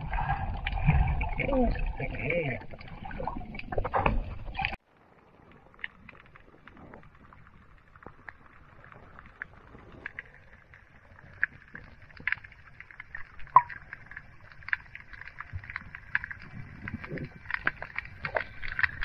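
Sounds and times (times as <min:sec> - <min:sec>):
low rumble of moving water: 0:00.0 - 0:19.0
underwater crackling clicks: 0:05.7 - 0:19.0.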